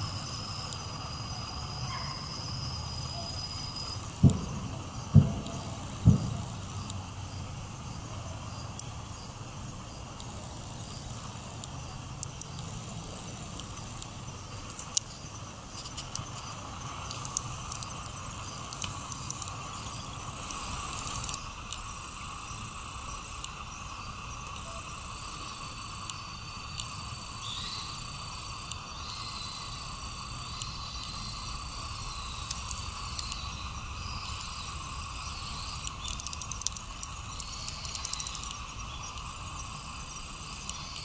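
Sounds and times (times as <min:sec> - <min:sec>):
insect drone: 0:00.0 - 0:41.0
low background rumble: 0:00.0 - 0:41.0
faint clicks and ticks: 0:04.2 - 0:07.0, 0:08.7 - 0:09.0, 0:10.1 - 0:10.4, 0:11.2 - 0:12.8, 0:13.5 - 0:23.8, 0:24.4 - 0:27.2, 0:28.3 - 0:28.9, 0:30.1 - 0:41.0.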